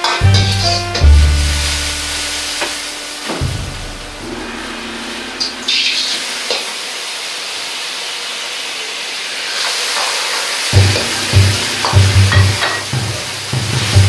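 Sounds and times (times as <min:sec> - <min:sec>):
ladle tapping wok: 0:00.0 - 0:06.7, 0:10.0 - 0:14.0
liquid hitting hot metal: 0:00.0 - 0:06.9, 0:09.6 - 0:14.0
stir-fry sizzling in a wok: 0:00.0 - 0:14.0.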